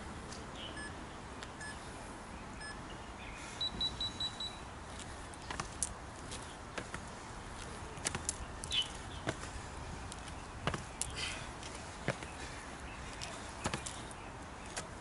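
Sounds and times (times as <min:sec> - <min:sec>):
steady outdoor hiss: 0:00.0 - 0:15.0
electronic beeps: 0:03.6 - 0:04.6
footsteps on paving: 0:04.9 - 0:15.0.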